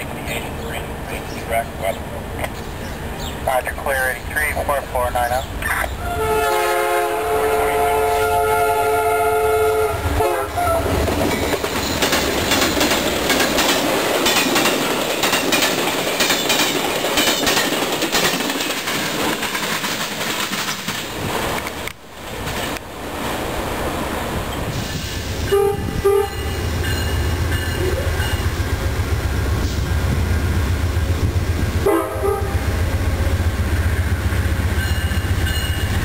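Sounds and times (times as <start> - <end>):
train air horn chord: 6.0 - 10.9, 25.5 - 26.6, 31.8 - 32.7
train wheels rushing over rails: 10.0 - 36.0
clicking at rail joints: 11.2 - 22.9.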